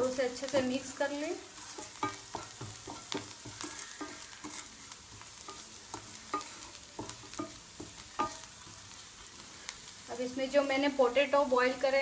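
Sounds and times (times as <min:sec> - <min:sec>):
onions sizzling in pan: 0:00.0 - 0:12.0
spatula scraping pan: 0:00.5 - 0:09.8.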